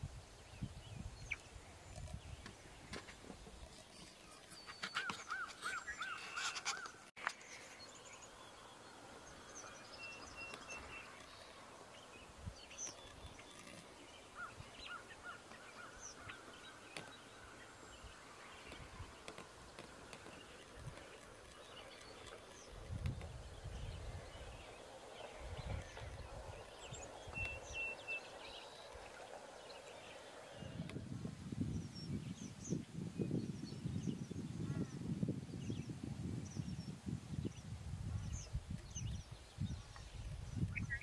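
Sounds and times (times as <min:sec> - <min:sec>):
distant birds calling: 0:00.0 - 0:31.0.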